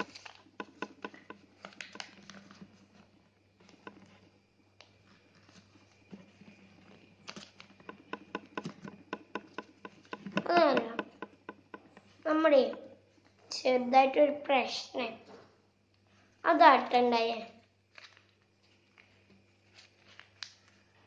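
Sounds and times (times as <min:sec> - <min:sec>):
paper rustling and crackling: 0:00.0 - 0:04.2, 0:04.8 - 0:07.8, 0:17.9 - 0:21.0.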